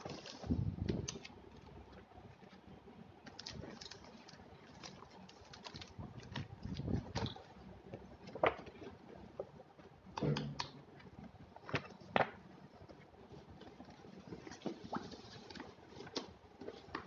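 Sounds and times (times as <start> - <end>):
paper and card rustling: 0.0 - 1.7, 3.3 - 7.4, 13.5 - 17.0.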